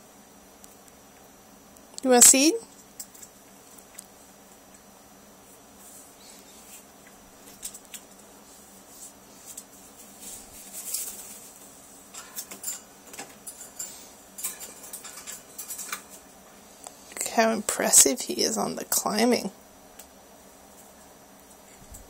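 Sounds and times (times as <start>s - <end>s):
rustling: 5.4s - 12.6s
parrot claws scratching and clicking: 7.4s - 8.3s, 12.1s - 16.2s.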